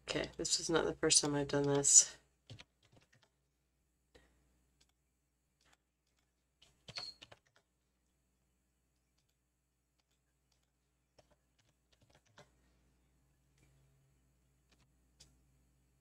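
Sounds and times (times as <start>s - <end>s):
keyboard typing: 2.4s - 3.4s, 5.6s - 7.7s, 10.0s - 12.5s.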